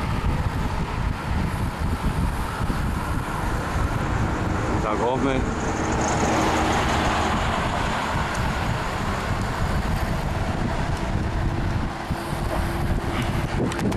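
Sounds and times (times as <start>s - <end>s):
wind buffeting microphone: 0.0s - 13.9s.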